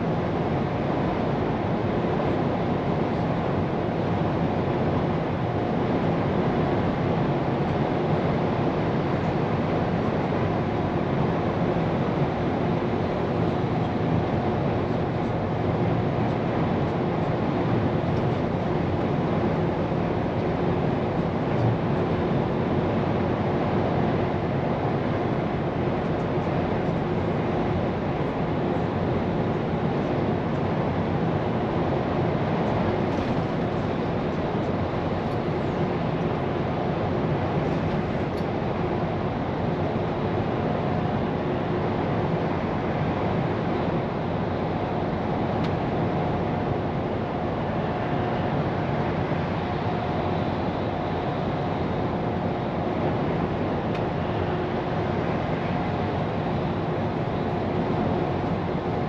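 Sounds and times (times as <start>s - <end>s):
road and tyre noise: 9.2s - 59.0s.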